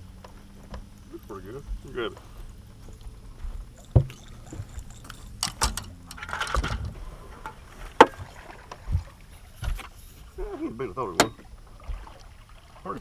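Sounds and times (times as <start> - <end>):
knocks and clicks on boat deck: 0.2 - 1.0, 3.9 - 10.0, 11.1 - 11.5.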